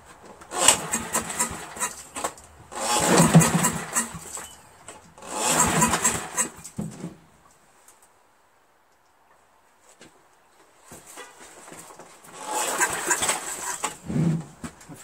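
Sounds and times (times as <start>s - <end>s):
engine cranked by pull starter: 0.4s - 6.8s, 12.3s - 14.4s.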